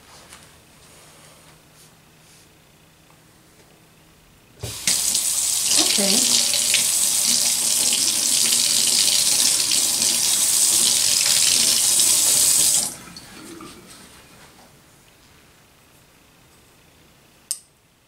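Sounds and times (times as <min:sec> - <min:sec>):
tap water running into sink: 0:04.6 - 0:13.8.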